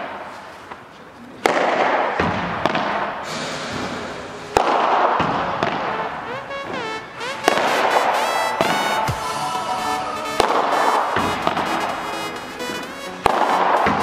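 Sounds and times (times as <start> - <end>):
electronic music with sharp hits: 3.3 - 14.0.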